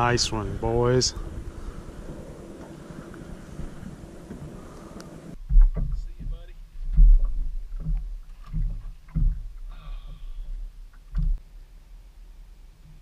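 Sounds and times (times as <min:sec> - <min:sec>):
dull thumps and knocks: 0:05.4 - 0:09.7, 0:11.0 - 0:11.4.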